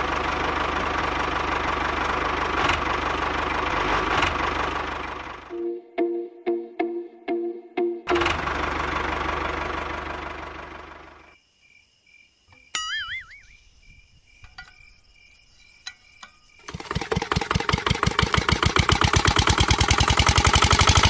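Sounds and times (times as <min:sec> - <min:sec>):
brief warbling tone: 0:05.5 - 0:08.4
faint steady chirping: 0:11.2 - 0:16.7.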